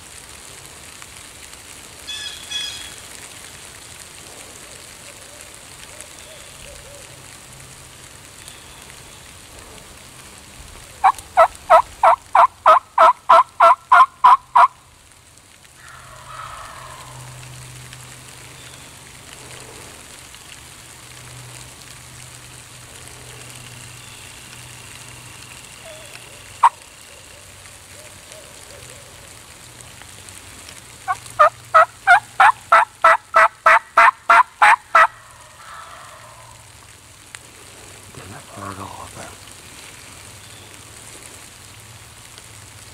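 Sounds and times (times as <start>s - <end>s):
turkey yelps: 11.0s - 14.7s, 15.8s - 17.3s, 31.1s - 36.6s.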